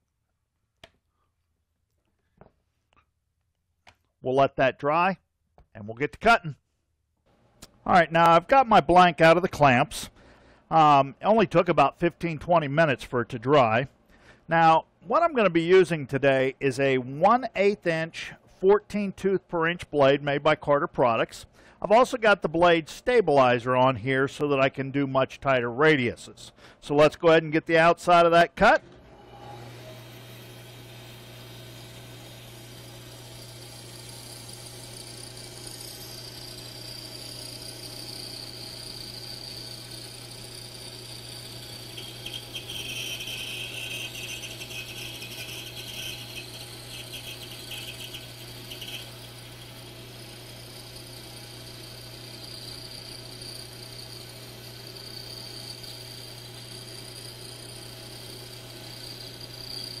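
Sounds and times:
motor hum: 28.8s - 60.0s
bandsaw cutting wood: 29.1s - 60.0s.

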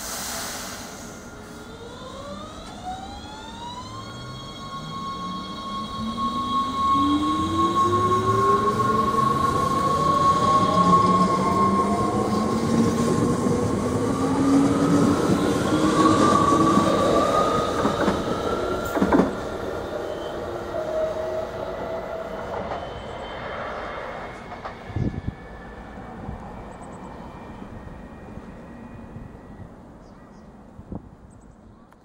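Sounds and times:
electric train motors whining: 1.3s - 23.2s.

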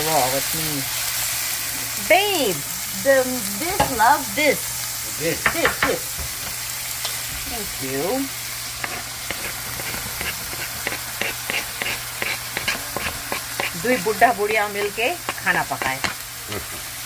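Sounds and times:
onion and tomato sizzling: 0.0s - 17.0s
spatula scraping cutting board: 8.8s - 16.2s
wooden spatula scraping pan: 8.8s - 16.8s.

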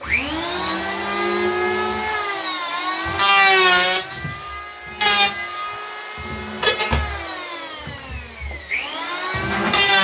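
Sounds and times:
electric hand planer whining: 0.0s - 10.0s.

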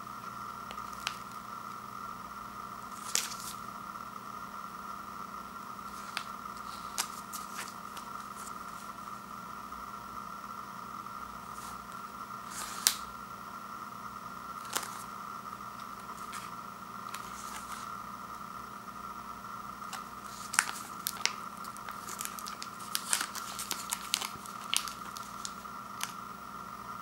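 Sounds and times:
steady background hum: 0.0s - 27.0s
wrapper crinkling: 2.9s - 3.6s, 5.9s - 8.9s, 14.6s - 15.1s, 17.1s - 17.9s, 19.8s - 26.2s.

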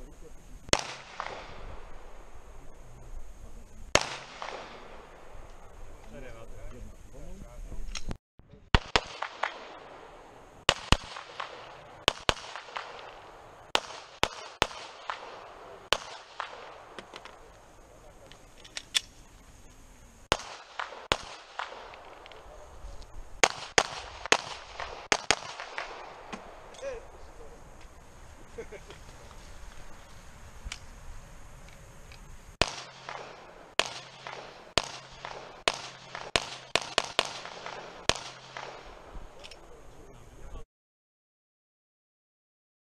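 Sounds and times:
handgun shots: 23.4s - 26.5s, 32.6s - 38.8s.

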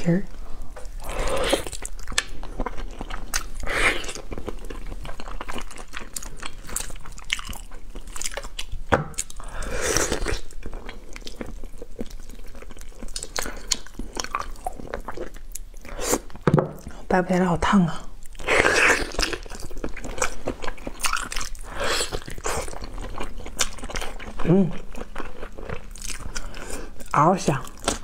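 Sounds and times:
wet biting and chewing: 1.0s - 16.9s, 18.3s - 27.1s.

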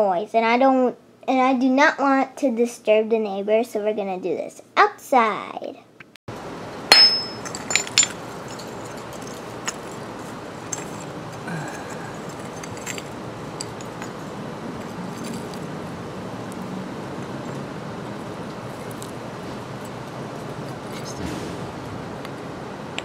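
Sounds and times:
hammer striking rock: 6.9s - 7.9s.

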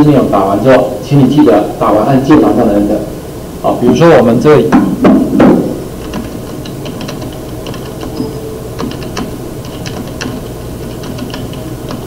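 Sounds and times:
keyboard key clicks: 8.8s - 12.0s.

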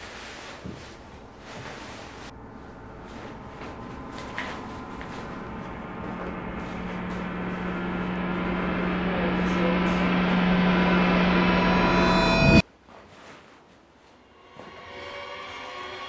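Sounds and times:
steady low hum: 0.6s - 12.6s
eerie film-score drone: 1.1s - 12.6s, 14.3s - 16.0s.

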